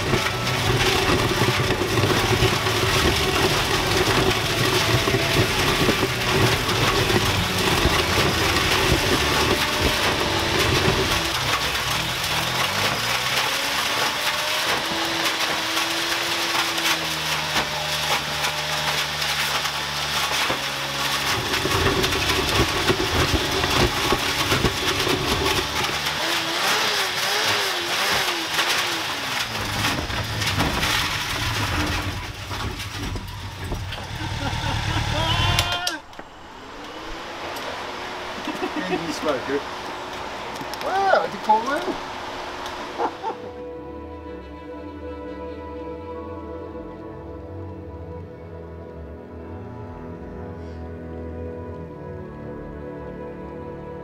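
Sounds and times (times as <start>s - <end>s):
blender blades shredding helmet: 0.0s - 40.5s
motorcycle engine revving: 0.0s - 43.8s.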